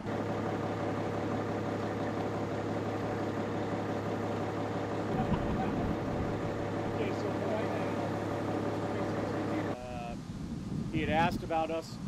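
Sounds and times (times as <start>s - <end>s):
fire truck engine idling: 0.0s - 9.8s
low rumble: 5.0s - 9.9s.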